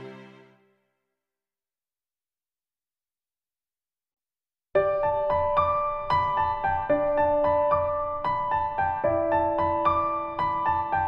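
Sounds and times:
piano-like keyboard music: 4.8s - 11.0s.

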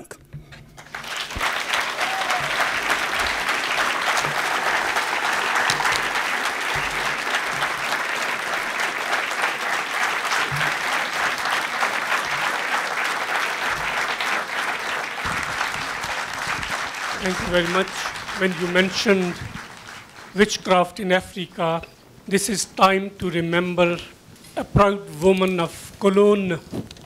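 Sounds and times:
audience applauding: 0.8s - 20.9s.

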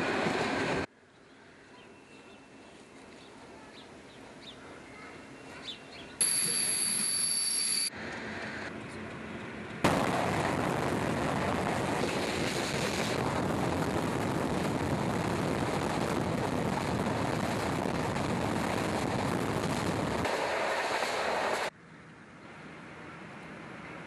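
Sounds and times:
high steady tone: 6.2s - 7.9s
train wheels rushing on rails: 8.2s - 21.7s.

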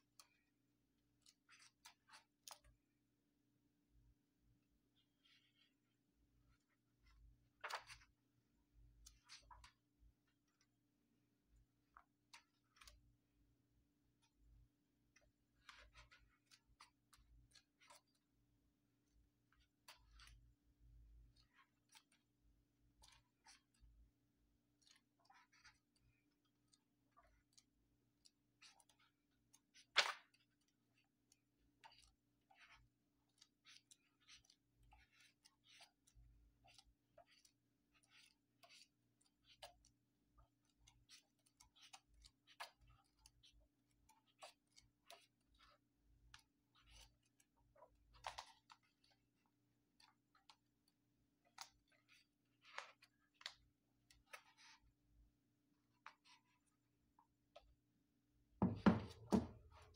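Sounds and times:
book pages turning: 7.0s - 8.1s.

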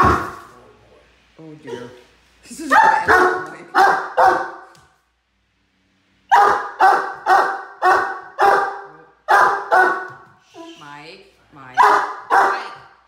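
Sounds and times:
puppy barking: 2.7s - 4.7s, 6.3s - 10.2s, 11.8s - 13.0s.

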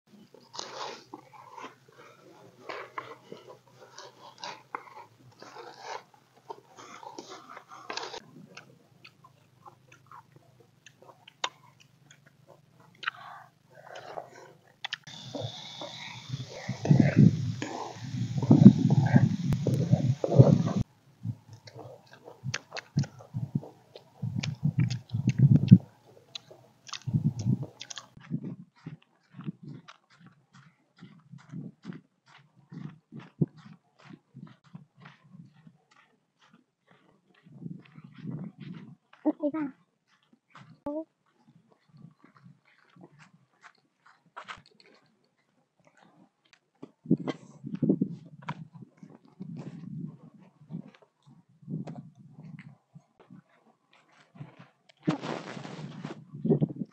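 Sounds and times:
chewing and crunching fried food: 0.1s - 56.9s
wet squelches of fruit: 0.2s - 56.9s
plastic glove crinkling: 55.0s - 56.3s.

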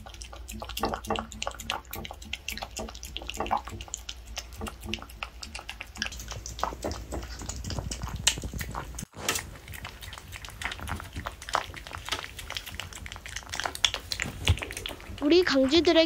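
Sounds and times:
dog lapping and slurping: 0.0s - 16.0s.

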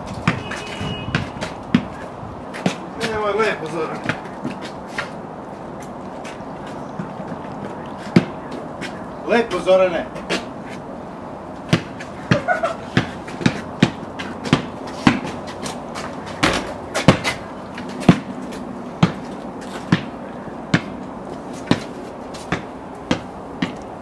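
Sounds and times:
basketball bouncing on hard floor: 0.1s - 3.2s, 7.0s - 9.0s, 11.7s - 17.4s, 18.0s - 18.3s, 19.0s - 19.3s, 19.9s - 20.1s, 20.7s - 21.0s, 22.5s - 23.8s.

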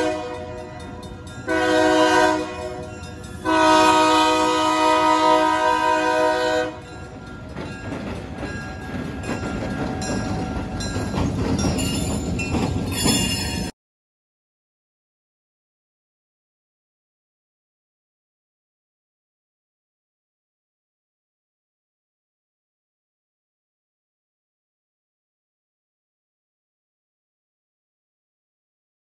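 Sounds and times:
locomotive air horn blasts: 0.0s - 0.7s, 1.4s - 6.9s
locomotive engine and wheels rumbling: 0.0s - 13.7s.

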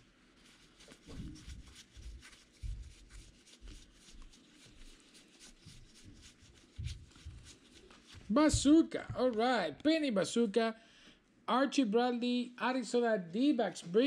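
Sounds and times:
rustling of cards: 0.3s - 9.5s.

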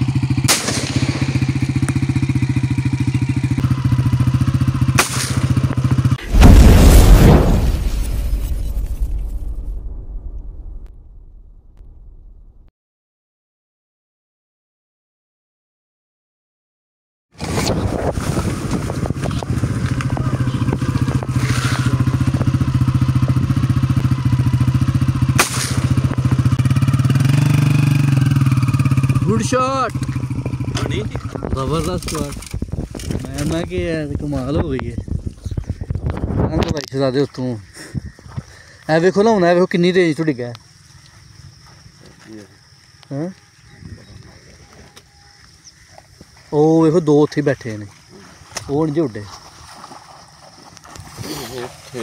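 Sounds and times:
small motorcycle engine running: 0.0s - 6.2s, 18.4s - 33.7s
loud explosion sound effect: 6.2s - 12.7s.

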